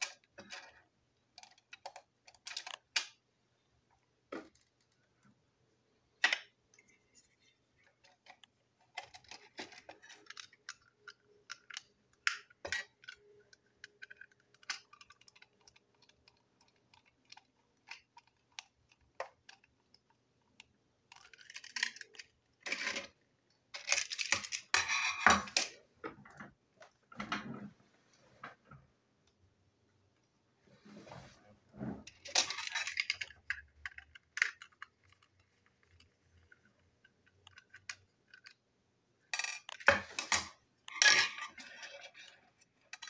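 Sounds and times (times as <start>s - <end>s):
plastic parts clicking and tapping: 0.0s - 3.2s, 7.8s - 27.0s, 32.1s - 38.6s, 39.4s - 43.0s
handling clatter and rustling: 6.8s - 18.7s, 21.1s - 28.6s, 30.7s - 38.6s, 39.3s - 43.0s.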